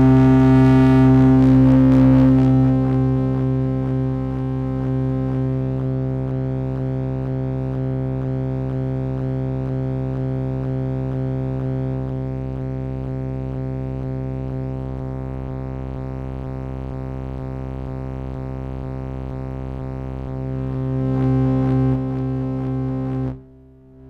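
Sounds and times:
pulsing synthesizer drone: 0:00.0 - 0:09.3, 0:10.1 - 0:24.0.

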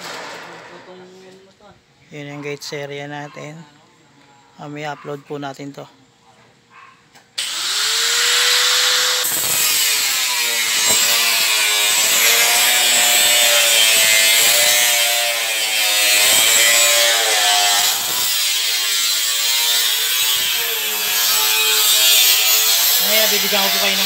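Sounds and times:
angle grinder cutting metal: 0:07.4 - 0:24.0.

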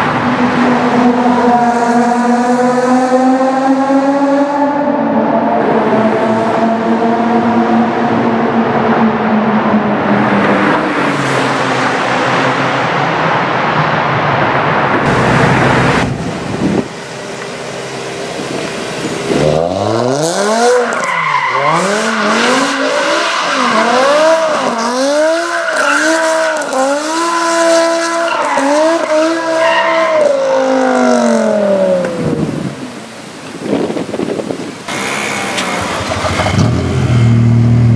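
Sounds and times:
car engine in tunnel: 0:00.0 - 0:33.7, 0:34.4 - 0:37.9
car engine revving: 0:14.7 - 0:32.8, 0:34.9 - 0:37.9
tyre squeal: 0:20.5 - 0:26.6.

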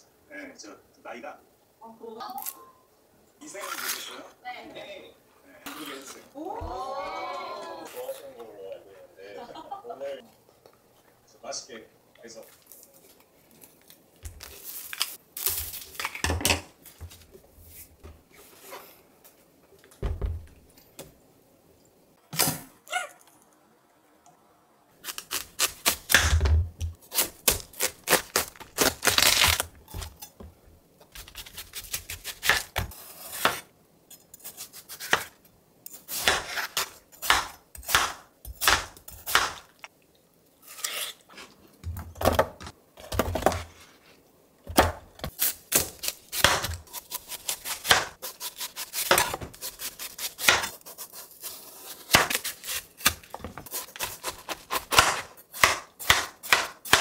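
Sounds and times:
knife cutting watermelon rind: 0:45.3 - 0:57.0.

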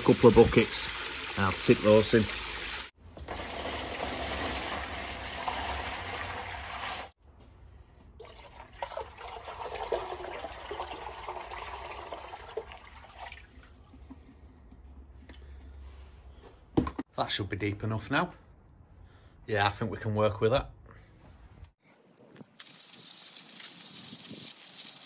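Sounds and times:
water pouring into plastic tub: 0:00.0 - 0:07.1, 0:08.2 - 0:14.0.

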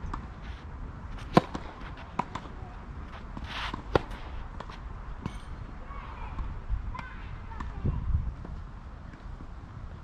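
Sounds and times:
shoe scrape on clay court: 0:00.0 - 0:05.4
racket hitting tennis ball: 0:01.1 - 0:05.5
tennis ball bouncing: 0:01.1 - 0:05.5.

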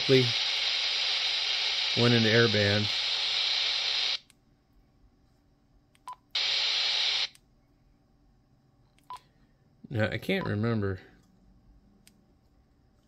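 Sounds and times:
radio static hiss: 0:00.0 - 0:04.3, 0:06.4 - 0:07.4.

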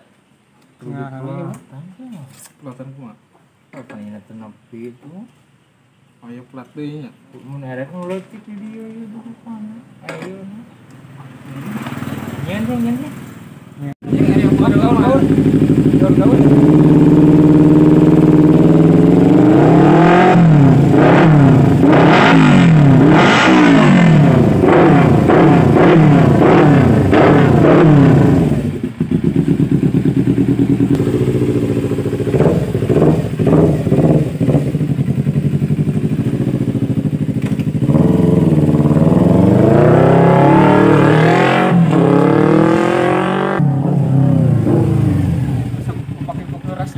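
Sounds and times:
motorcycle engine revving: 0:11.2 - 0:46.9.

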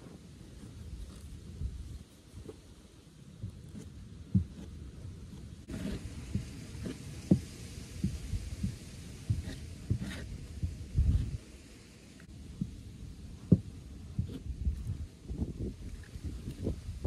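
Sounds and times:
faint steady hiss: 0:00.0 - 0:17.0
brush thumping on wood: 0:03.4 - 0:11.4, 0:13.4 - 0:15.0.

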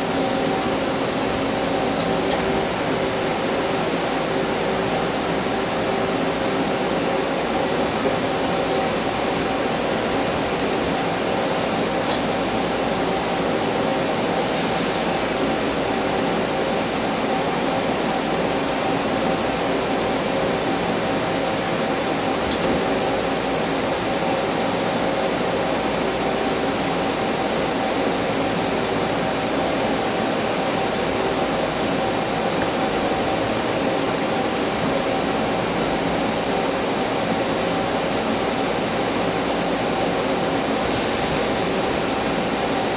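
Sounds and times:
machine humming with steady tones: 0:00.0 - 0:42.9.

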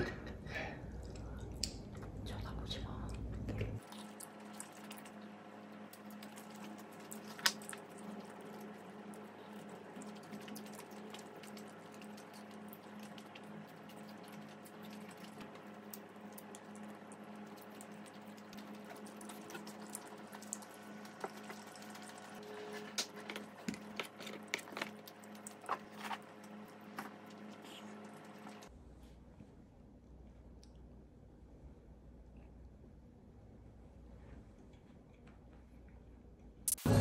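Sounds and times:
steady low hum: 0:00.0 - 0:37.0
wet chewing: 0:03.0 - 0:22.4, 0:23.0 - 0:28.7.

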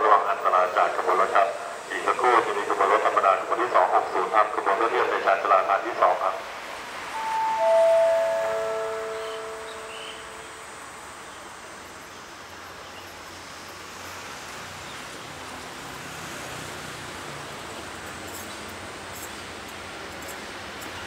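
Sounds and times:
railway station ambience hiss: 0:00.0 - 0:21.0
chime ringing: 0:07.1 - 0:11.4.

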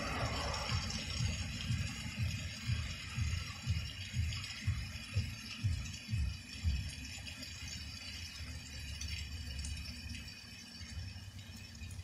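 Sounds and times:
low rumble: 0:00.0 - 0:06.3.

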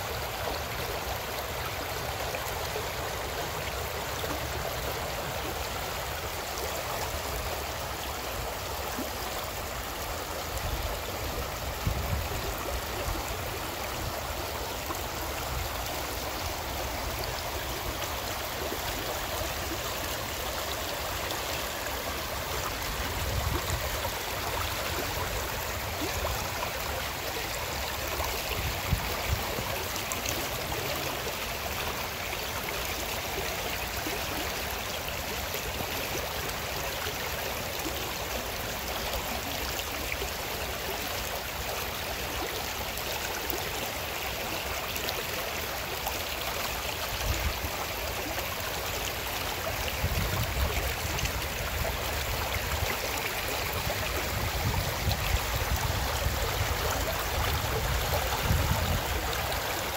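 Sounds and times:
stream gurgling over stones: 0:00.0 - 0:59.9.

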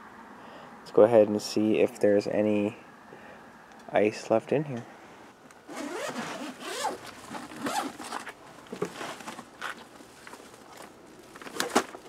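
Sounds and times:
zipper being pulled open: 0:05.7 - 0:08.3.

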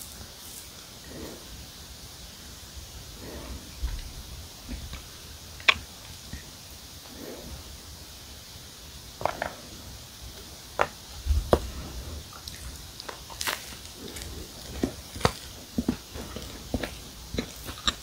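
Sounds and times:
cookie crackling as broken: 0:12.4 - 0:15.5.

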